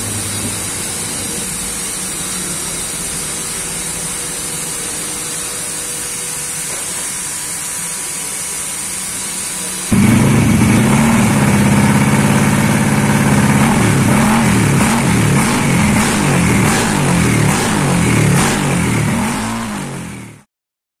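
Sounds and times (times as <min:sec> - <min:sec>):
scooter engine revving: 0:09.9 - 0:20.5.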